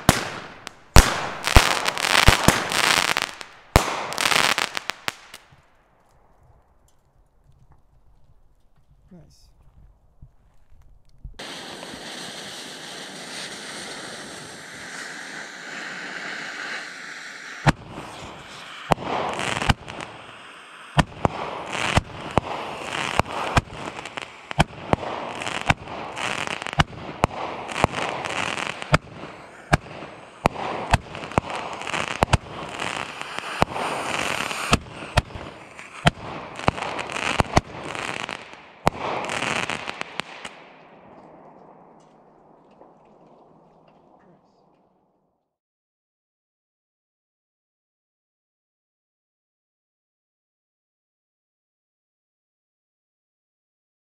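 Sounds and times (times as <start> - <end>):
firework fuse hissing: 0.0 - 5.4, 11.4 - 40.5
sharp firework bursts: 0.0 - 5.6, 11.4 - 41.5
firework crackling: 0.0 - 5.7, 11.4 - 44.0
firework tube launches: 11.4 - 40.6.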